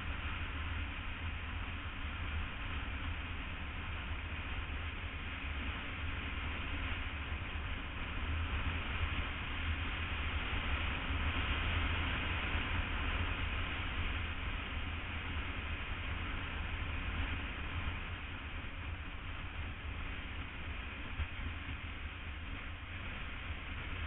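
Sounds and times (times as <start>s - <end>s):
motorcycle road rumble: 0.0s - 24.0s.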